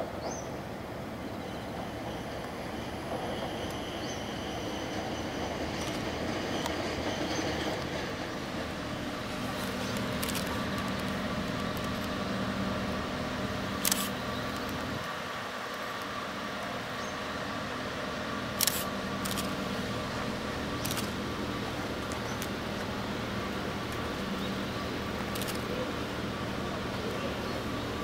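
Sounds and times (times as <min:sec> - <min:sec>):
diesel engines idling: 0:07.7 - 0:28.0.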